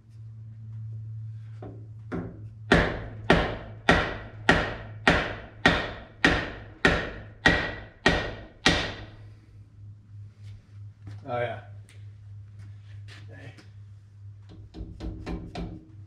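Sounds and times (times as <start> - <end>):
hammer tapping on metal pipe: 14.5 - 15.8.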